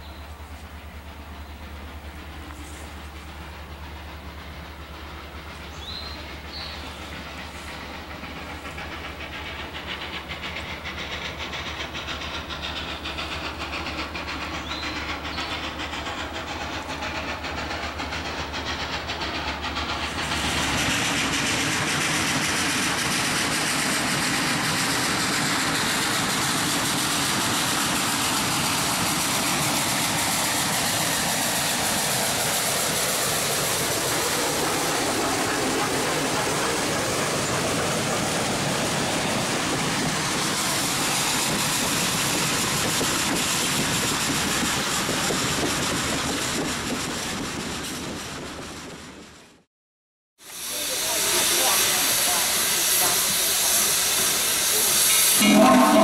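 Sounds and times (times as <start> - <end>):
steam locomotive passing: 0.0 - 49.7, 50.4 - 56.0.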